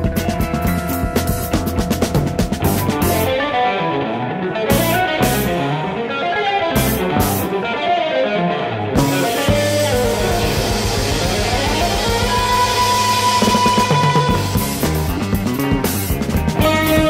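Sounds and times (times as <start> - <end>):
drum kit: 0.0 - 3.8, 4.6 - 6.0, 6.7 - 7.7, 9.0 - 17.0
electric guitar lines: 0.0 - 17.0
long held high note: 9.6 - 14.7.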